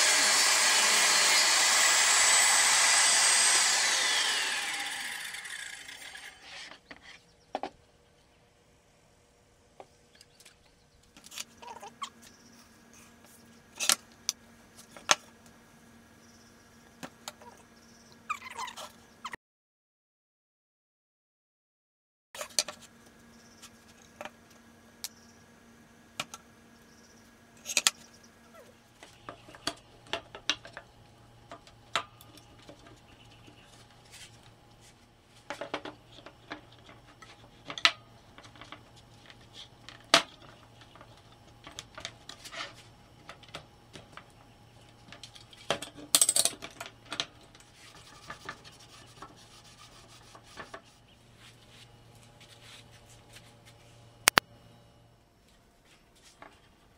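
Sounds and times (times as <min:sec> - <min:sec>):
faint steady hum: 0:22.4 - 0:56.9.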